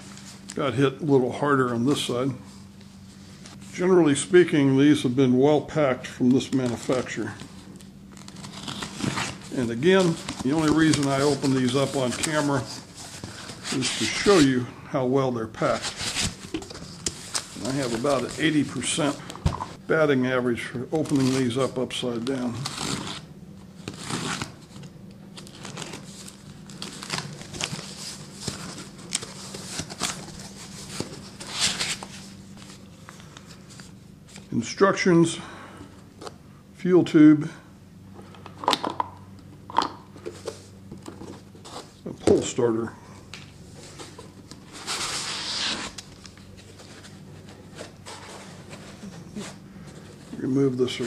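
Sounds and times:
cardboard and foam rustling: 0:08.2 - 0:14.6, 0:15.6 - 0:19.7, 0:25.4 - 0:32.8, 0:43.8 - 0:51.0.

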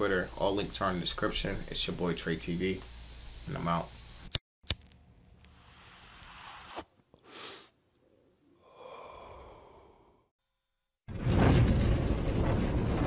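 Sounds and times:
breathy whooshes: 0:08.6 - 0:10.3.

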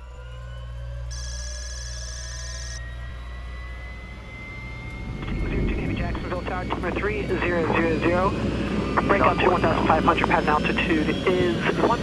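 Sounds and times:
jet engine whine: 0:00.0 - 0:12.0
low rumble: 0:03.0 - 0:10.6.

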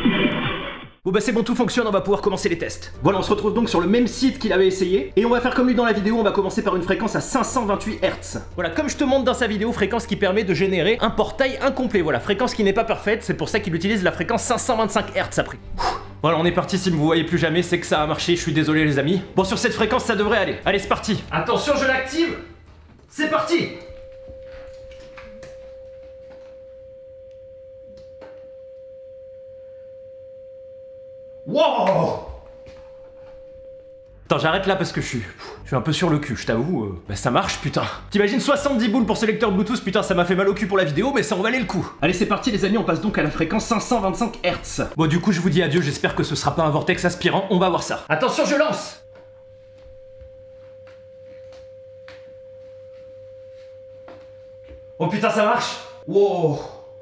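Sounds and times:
sine tone: 0:23.6 - 0:35.0, 0:48.2 - 0:57.0.

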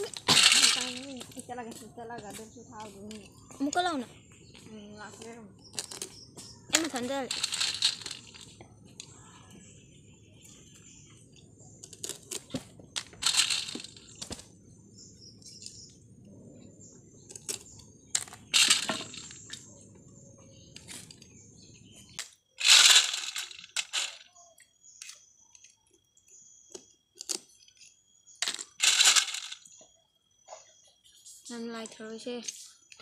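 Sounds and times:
shells rattling in steel bowl: 0:00.0 - 0:01.4, 0:06.7 - 0:08.6, 0:11.9 - 0:14.3, 0:18.2 - 0:19.5, 0:22.6 - 0:24.3, 0:28.4 - 0:29.7.

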